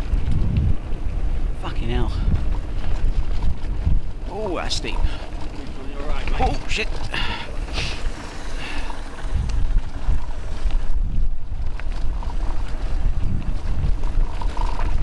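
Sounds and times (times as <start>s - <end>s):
bike tyres rattling over gravel: 0.0s - 15.0s
wind buffeting microphone: 0.0s - 15.0s.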